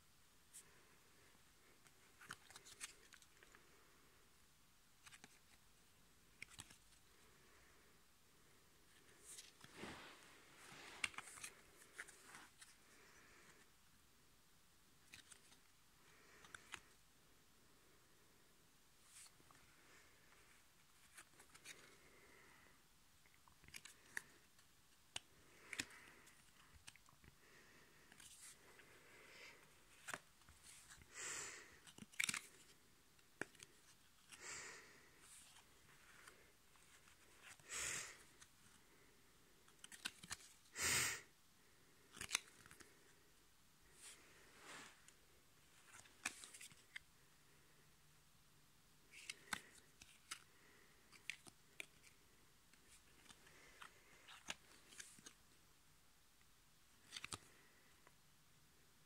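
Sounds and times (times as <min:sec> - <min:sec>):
trading cards clicking and rustling: 0:31.7 - 0:34.4, 0:39.6 - 0:40.6, 0:42.0 - 0:43.0, 0:49.1 - 0:55.4, 0:57.0 - 0:57.5
cards swishing together: 0:39.7 - 0:40.6.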